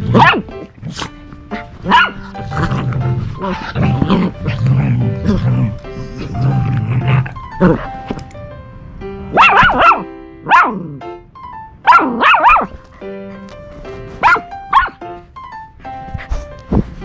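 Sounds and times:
dogs barking and yipping: 0.0s - 4.6s, 9.3s - 10.8s, 11.9s - 13.1s, 14.0s - 15.0s
background music: 0.0s - 17.0s.

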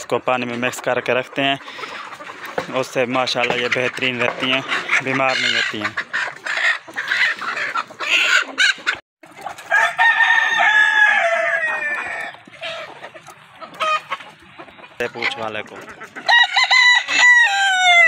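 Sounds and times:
chickens clucking: 0.0s - 18.0s
rooster crowing: 9.7s - 12.4s, 16.3s - 18.0s.

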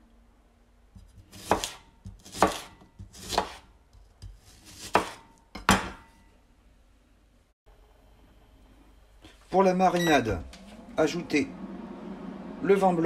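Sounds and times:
knife slicing onion: 1.0s - 6.2s.

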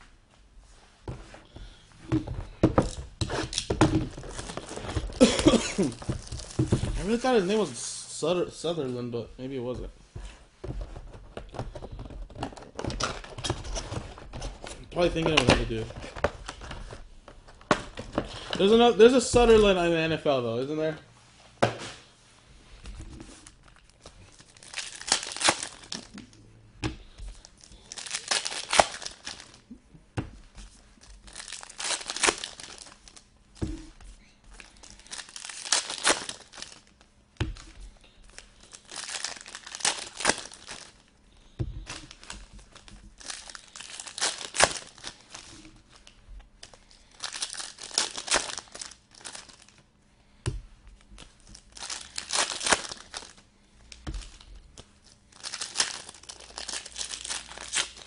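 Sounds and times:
foil wrappers tearing and crinkling: 3.2s - 7.8s, 23.4s - 26.2s, 27.3s - 29.6s, 31.0s - 37.0s, 37.6s - 41.1s, 41.9s - 49.8s, 51.2s - 53.4s, 54.2s - 58.0s.

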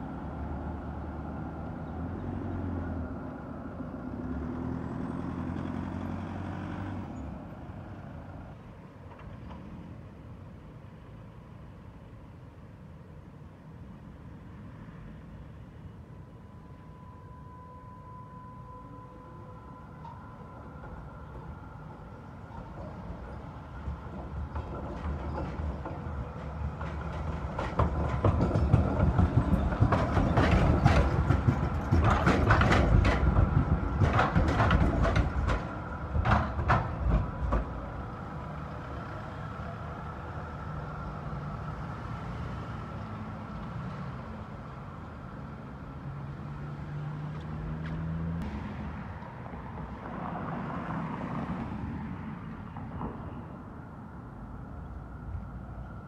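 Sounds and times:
street traffic: 0.0s - 56.0s
tram wheels clattering over points: 20.0s - 38.5s.

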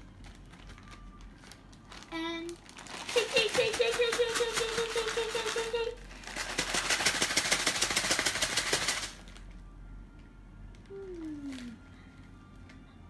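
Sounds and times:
plastic bag rattling: 0.0s - 9.5s.

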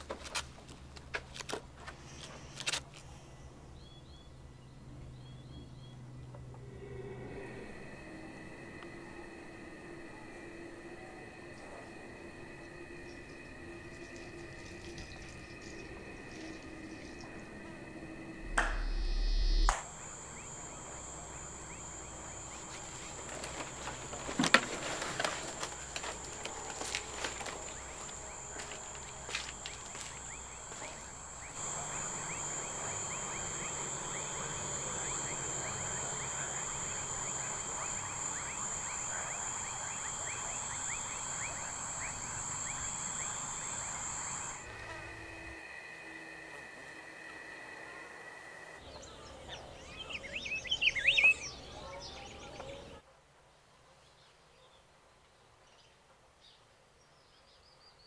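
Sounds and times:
insects chirping: 1.9s - 52.0s
crickets trilling: 5.2s - 51.7s
low swell with hiss: 6.0s - 48.8s.

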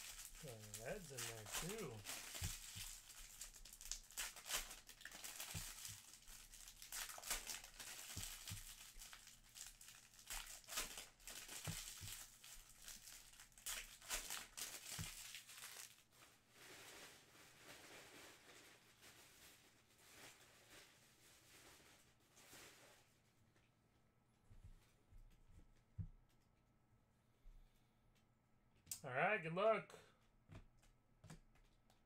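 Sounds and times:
plastic wrapping crinkling and tearing: 0.0s - 22.9s.

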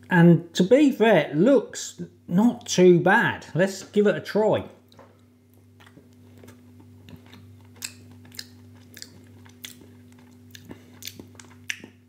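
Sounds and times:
steady low hum: 0.0s - 12.0s
mouth chewing with wet smacks: 4.9s - 12.0s.

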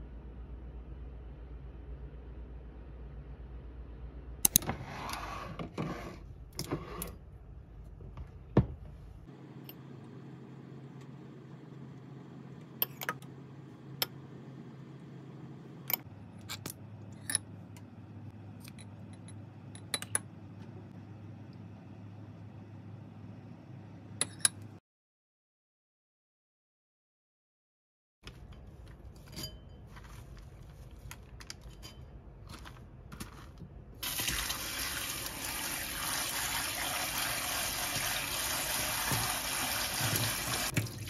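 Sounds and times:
bottles and caps on countertop: 36.7s - 41.0s.

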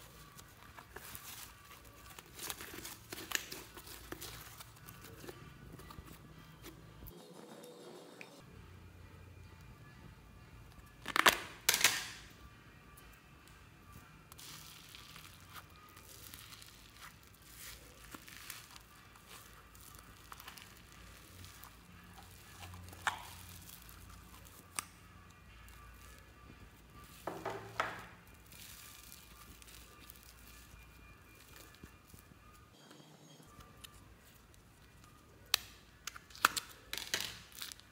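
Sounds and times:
foam slime crackling: 14.3s - 24.8s.

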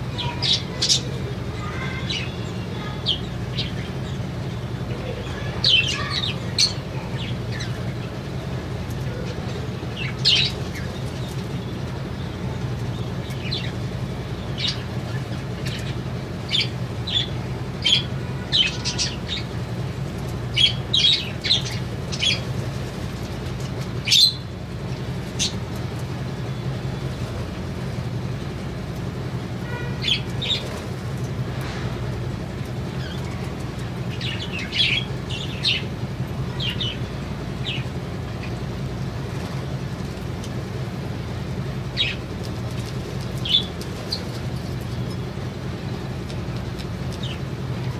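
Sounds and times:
low steady hum: 0.0s - 47.9s
budgerigars chirping: 9.9s - 11.4s, 20.5s - 22.4s, 34.1s - 35.9s, 42.0s - 42.2s.

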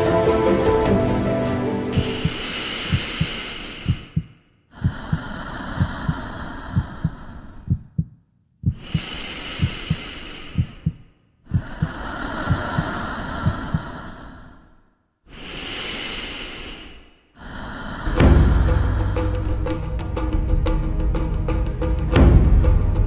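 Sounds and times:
heartbeat thumps: 2.0s - 14.0s
slow breathing: 2.0s - 20.0s.

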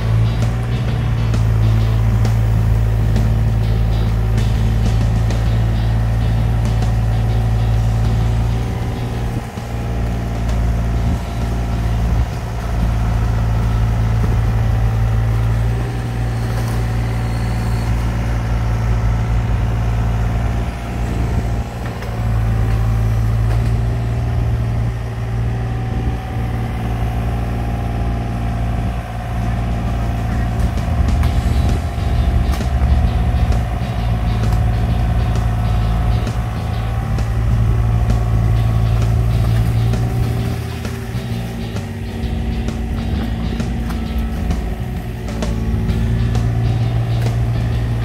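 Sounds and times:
excavator engine humming: 0.0s - 48.0s.

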